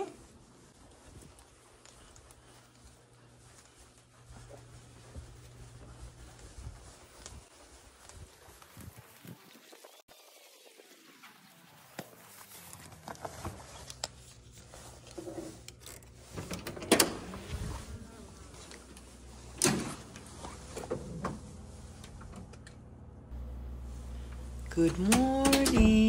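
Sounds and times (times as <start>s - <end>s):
handling noises: 11.9s - 22.8s.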